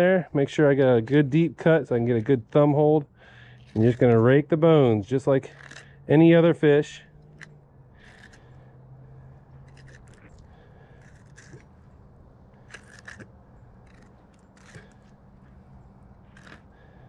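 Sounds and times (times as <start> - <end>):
knife scraping fish bones: 3.6 - 4.2, 5.4 - 6.0, 7.3 - 8.6, 9.6 - 17.0.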